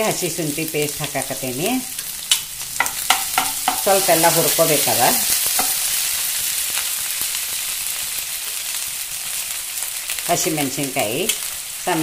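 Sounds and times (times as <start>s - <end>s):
paste sizzling in hot oil: 0.0s - 12.0s
steel spoon tapping: 2.8s - 3.9s, 5.6s - 5.8s.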